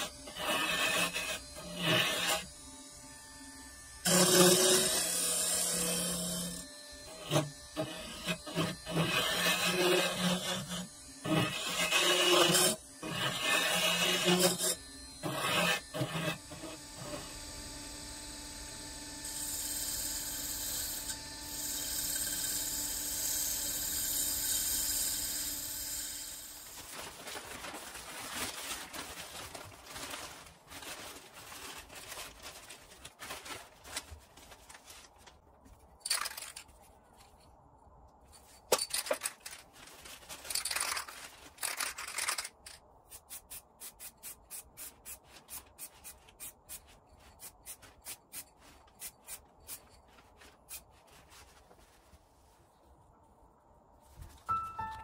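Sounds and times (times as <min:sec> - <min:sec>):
plastic sheeting crinkling: 0:26.7 - 0:35.6.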